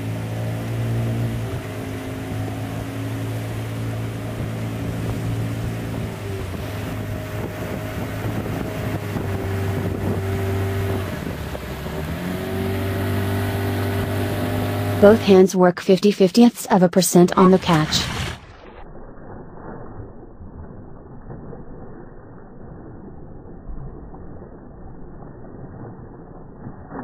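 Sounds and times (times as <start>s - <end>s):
boat engine running: 0.0s - 18.5s.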